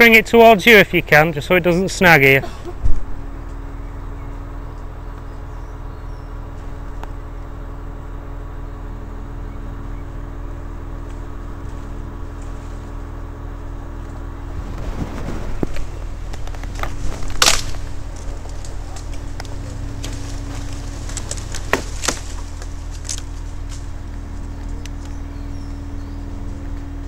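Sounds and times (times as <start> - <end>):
crane engine humming: 0.0 - 27.0
rustles and knocks: 14.6 - 24.0.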